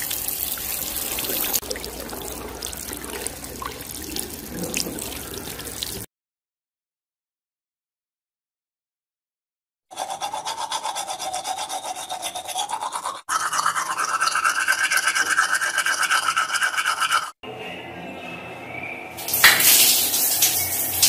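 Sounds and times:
toothbrush scrubbing teeth: 0:00.8 - 0:06.1, 0:09.9 - 0:17.4.

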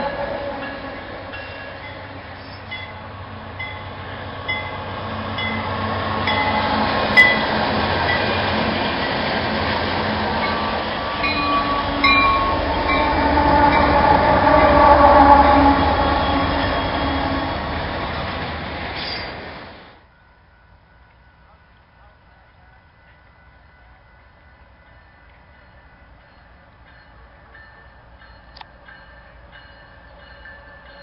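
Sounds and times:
train wheels rolling on rails: 0:00.0 - 0:20.0
diesel locomotive engines: 0:00.0 - 0:31.0.

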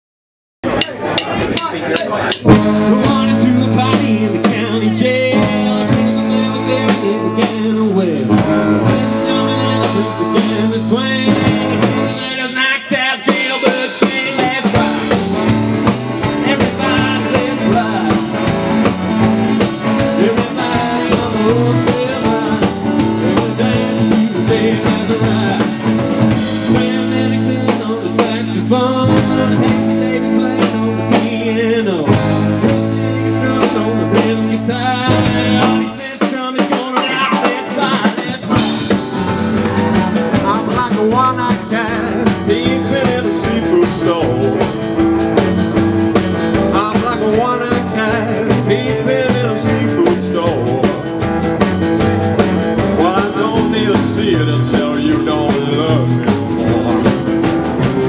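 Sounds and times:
drum kit: 0:00.6 - 0:58.0
man singing lead vocal: 0:00.8 - 0:51.3, 0:52.8 - 0:57.4
electric guitar: 0:02.4 - 0:58.0
saxophone: 0:02.6 - 0:12.4.

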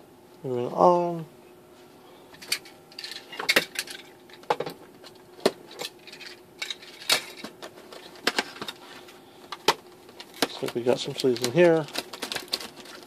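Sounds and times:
packaging clicks and knocks: 0:09.5 - 0:13.0
faint packaging rustle: 0:09.9 - 0:13.0.

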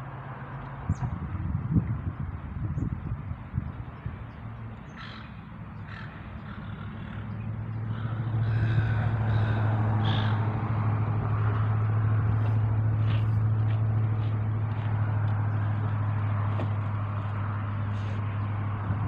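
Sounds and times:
low engine drone: 0:00.0 - 0:19.0
bird calls: 0:03.8 - 0:10.6.

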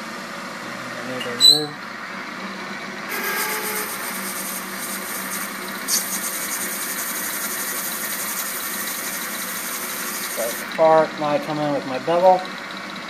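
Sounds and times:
lathe running: 0:01.9 - 0:13.0
cutting tool hissing on metal: 0:03.1 - 0:10.7.

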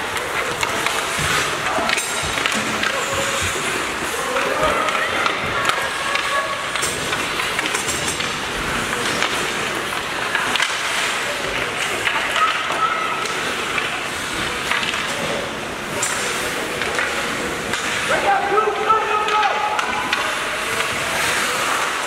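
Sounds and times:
hockey sticks and puck clacking: 0:00.0 - 0:22.0
skates scraping ice: 0:00.0 - 0:22.0
faint shouting voices: 0:11.8 - 0:13.8, 0:17.9 - 0:22.0.

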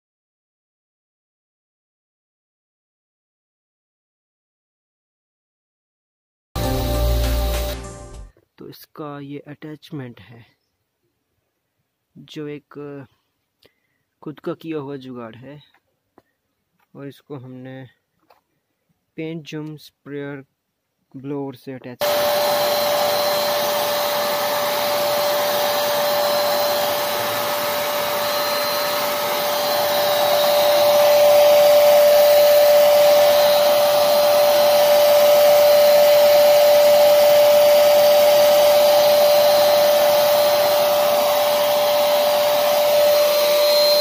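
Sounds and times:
paint sprayer blower humming: 0:06.6 - 0:08.3, 0:22.0 - 0:44.0.

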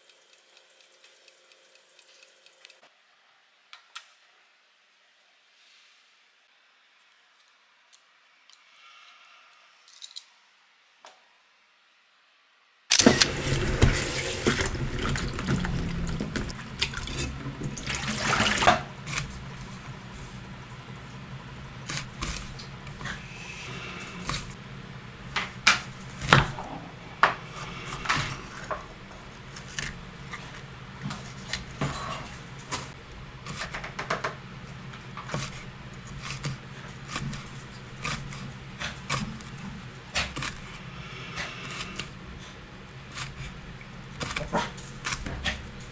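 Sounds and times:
water running: 0:12.9 - 0:34.2.

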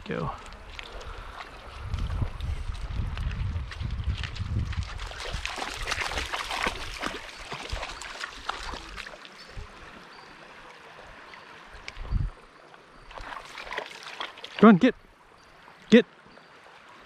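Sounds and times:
river water splashing over rocks: 0:04.3 - 0:17.0.

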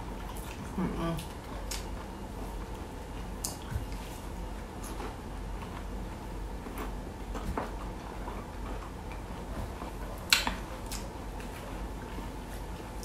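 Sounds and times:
person chewing: 0:03.2 - 0:05.9.

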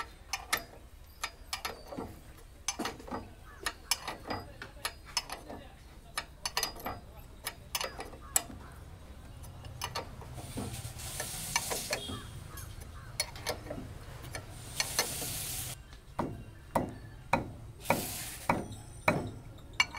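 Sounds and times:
spanner clicking on metal: 0:00.0 - 0:15.8, 0:17.3 - 0:19.9
high hiss: 0:17.8 - 0:18.6.

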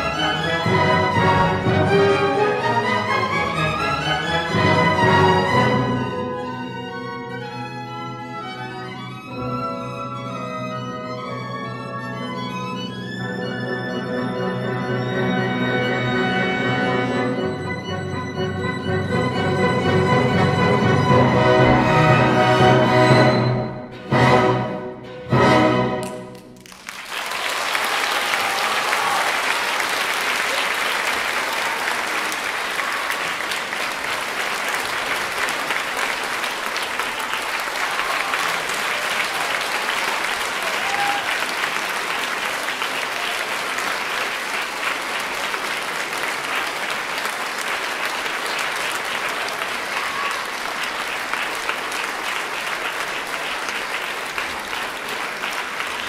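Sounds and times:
orchestra chord: 0:00.0 - 0:07.4, 0:10.8 - 0:26.5
audience applauding: 0:26.0 - 0:56.0.

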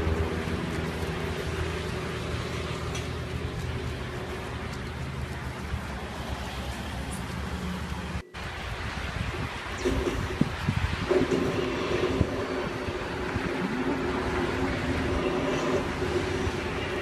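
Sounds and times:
outdoor low rumble with hiss: 0:00.0 - 0:17.0.

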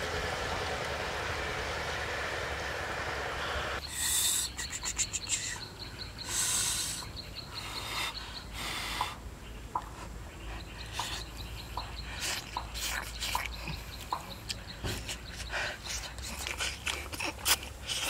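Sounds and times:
faint high ticking insects: 0:03.8 - 0:09.2
man chewing food: 0:16.2 - 0:18.0.

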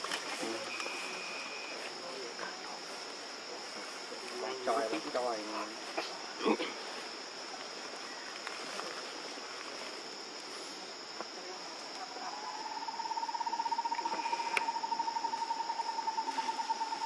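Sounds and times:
insect chorus drone: 0:00.0 - 0:17.0
low pulsing call: 0:12.1 - 0:17.0.

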